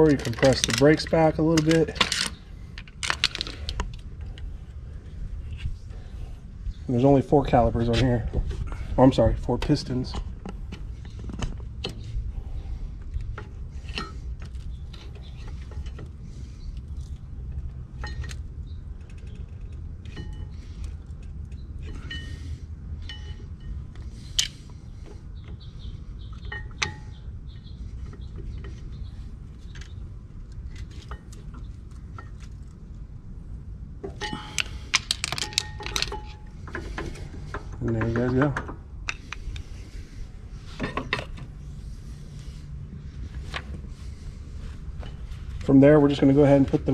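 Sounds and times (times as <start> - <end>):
metal tools clinking: 0.0 - 3.7, 21.8 - 24.5, 34.1 - 39.5
steady low rumble: 0.0 - 46.9.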